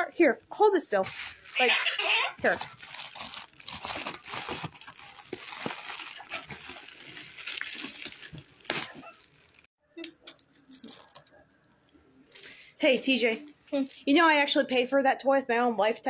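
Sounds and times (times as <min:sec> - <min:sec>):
plastic bag rustling and crinkling: 0:00.9 - 0:09.7
sharp plastic crackle: 0:02.4 - 0:09.7.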